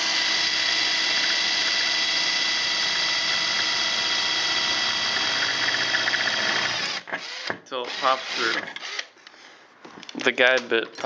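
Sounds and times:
power drill boring through metal: 0.0s - 9.1s.

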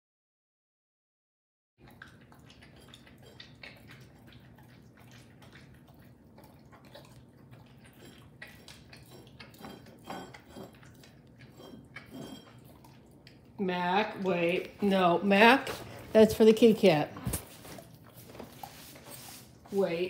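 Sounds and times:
animals licking food: 1.8s - 20.0s
saucer clinking and scraping: 9.1s - 12.7s.

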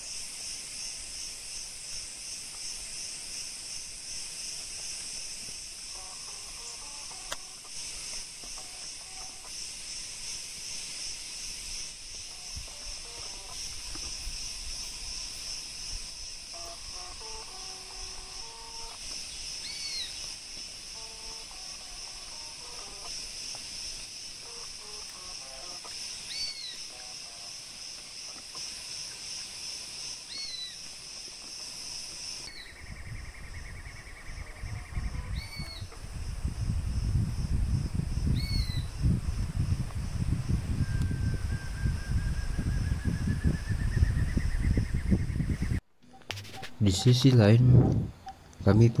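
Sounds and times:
insects droning: 0.0s - 49.0s.

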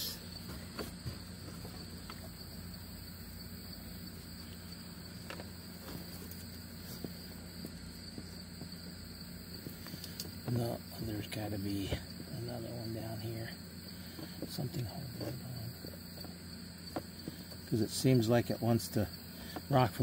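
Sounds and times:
insects chirring: 0.0s - 20.0s.

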